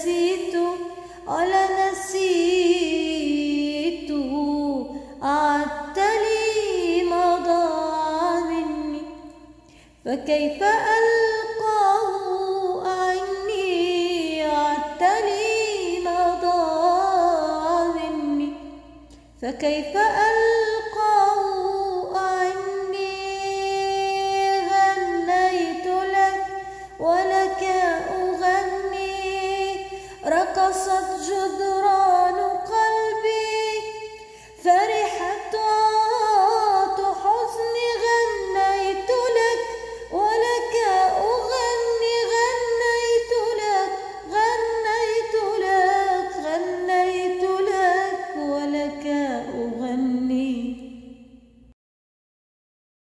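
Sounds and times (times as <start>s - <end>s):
woman singing unaccompanied: 0.0s - 51.3s
singer breathing: 0.9s - 1.3s, 9.6s - 10.0s, 26.6s - 27.0s, 29.8s - 30.2s, 34.2s - 34.6s, 39.7s - 40.1s.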